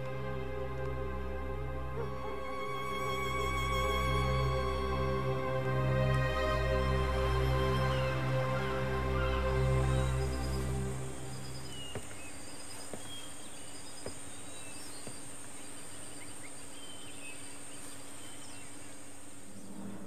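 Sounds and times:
soundtrack music: 0:00.0 - 0:11.7
bird chirps: 0:07.8 - 0:20.0
low hum: 0:19.1 - 0:20.0.

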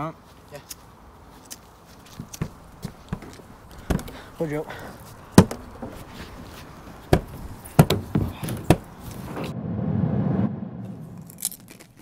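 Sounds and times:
low rumbling: 0:09.1 - 0:12.0.

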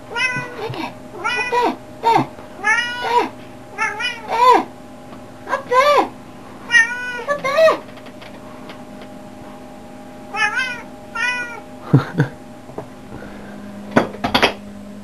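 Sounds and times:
cat meowing: 0:00.1 - 0:01.8, 0:02.6 - 0:04.7, 0:06.7 - 0:07.3, 0:10.3 - 0:11.6.

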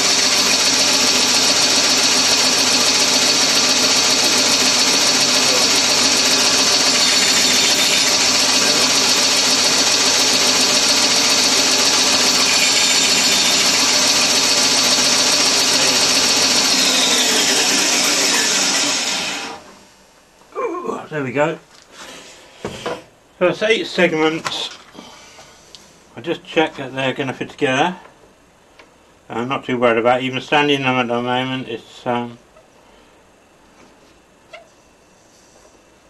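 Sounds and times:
bandsaw running: 0:00.0 - 0:19.7.

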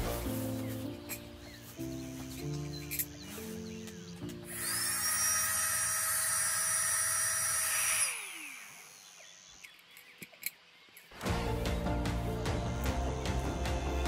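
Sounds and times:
small air pump motor whine: 0:04.5 - 0:10.0.

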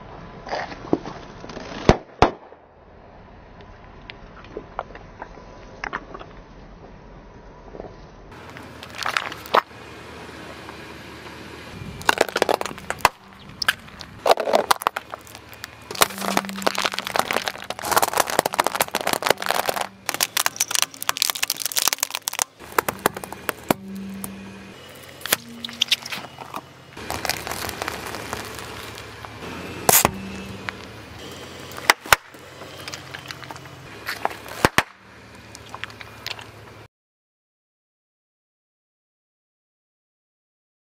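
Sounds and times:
plastic crunching under tyre: 0:08.4 - 0:09.7, 0:10.4 - 0:36.8
sharp cracks: 0:12.0 - 0:24.4, 0:34.3 - 0:36.0.

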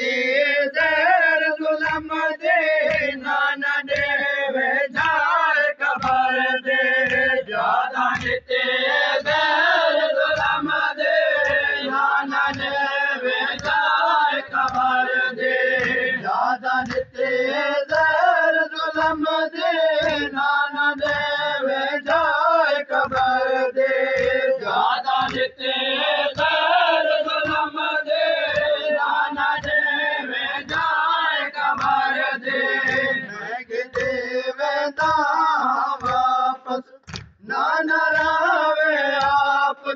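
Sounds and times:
men chanting a lament: 0:00.0 - 0:39.9.

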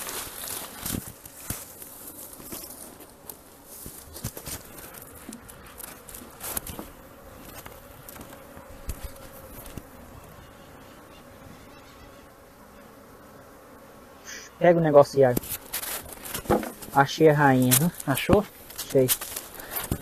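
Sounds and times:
rustling: 0:00.0 - 0:10.4, 0:15.3 - 0:20.0
honeybees buzzing: 0:00.0 - 0:20.0.

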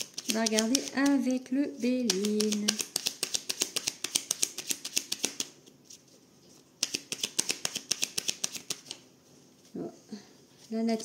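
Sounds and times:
cards being shuffled: 0:00.0 - 0:09.0.

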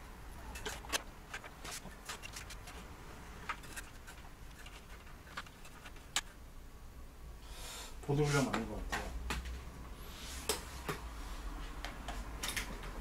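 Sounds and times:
clicks and knocks handling parts: 0:00.4 - 0:06.4.

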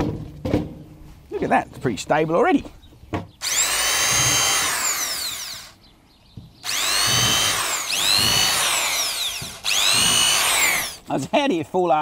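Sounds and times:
electric drill whining: 0:03.4 - 0:05.8, 0:06.6 - 0:11.1.

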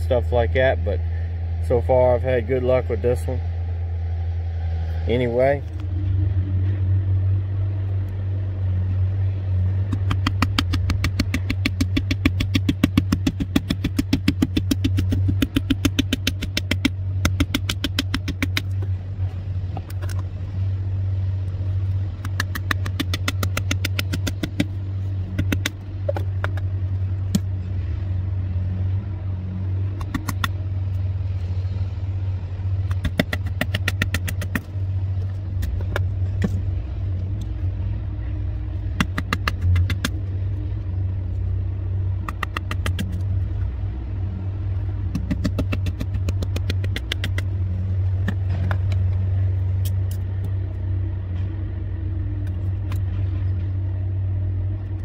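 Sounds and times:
vehicle engine idling: 0:00.0 - 0:55.0
knife carving wooden stick: 0:09.8 - 0:18.9, 0:21.6 - 0:27.6, 0:29.9 - 0:30.6, 0:32.8 - 0:36.7, 0:38.8 - 0:40.2, 0:42.2 - 0:43.4, 0:45.0 - 0:47.6.

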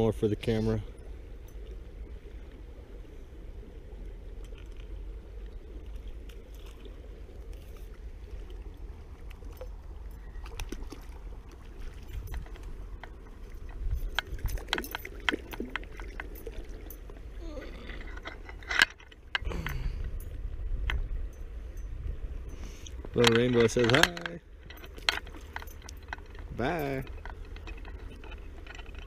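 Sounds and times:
river water rumble: 0:00.0 - 0:29.0
wind on microphone: 0:08.3 - 0:18.3.

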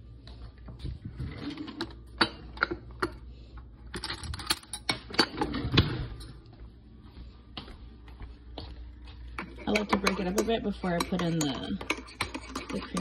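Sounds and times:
metal utensils clinking and rattling: 0:09.4 - 0:13.0.

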